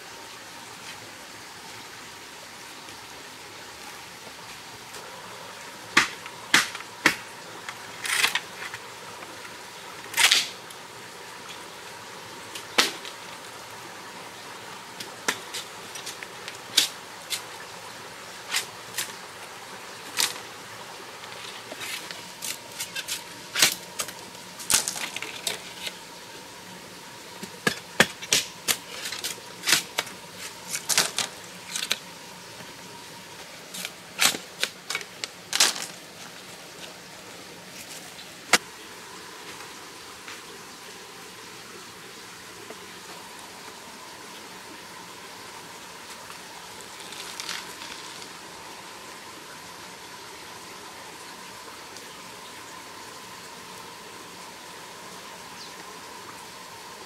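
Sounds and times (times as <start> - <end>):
stream rushing: 0.0 - 57.0
machete chopping bamboo: 6.0 - 7.2.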